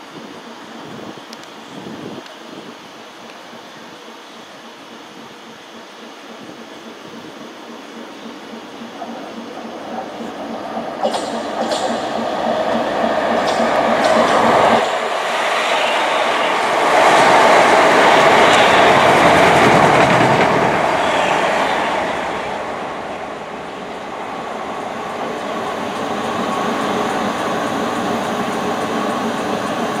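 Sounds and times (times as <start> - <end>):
electric train passing close by: 0.0 - 30.0
train pulling in: 0.0 - 30.0.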